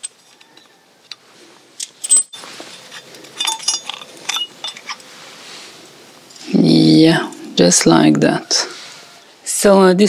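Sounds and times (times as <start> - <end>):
metal bolts clicking and clinking: 0.0 - 0.7, 1.8 - 5.1.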